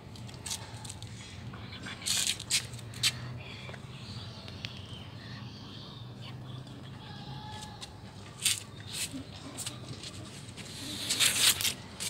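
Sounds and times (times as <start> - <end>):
leaves rustling against phone: 8.4 - 12.0.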